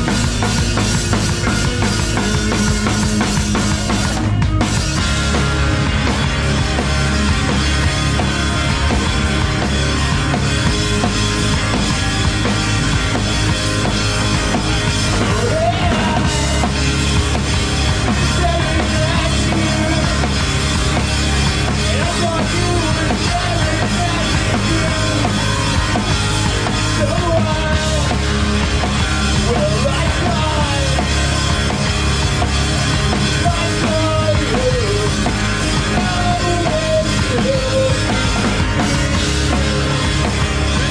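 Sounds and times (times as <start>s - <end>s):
punk band playing live: 0.0s - 40.9s
person singing: 15.1s - 17.1s, 18.0s - 20.3s, 21.7s - 28.2s, 33.2s - 38.4s.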